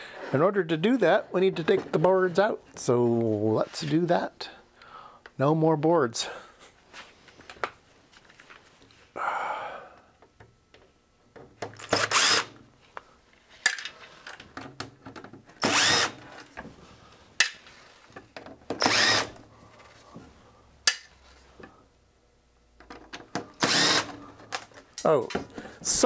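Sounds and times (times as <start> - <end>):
cordless drill running in bursts: 11.8 - 12.6, 15.6 - 16.2, 18.8 - 19.4, 23.6 - 24.2.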